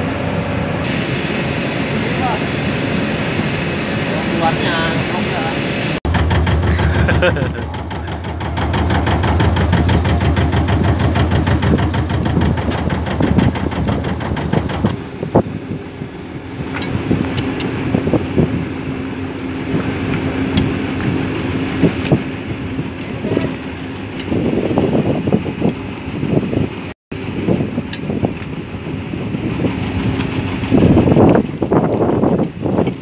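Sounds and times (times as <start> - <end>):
steady hum: 0.0 - 12.4
boat motor running: 0.0 - 33.0.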